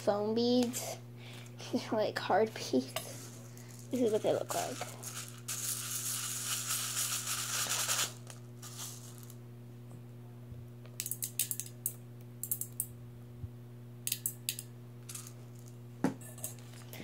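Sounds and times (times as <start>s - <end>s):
beads rattling in a cup: 3.1s - 9.4s, 15.1s - 15.8s
beads clicking into metal bowl: 11.0s - 12.9s, 14.1s - 15.7s.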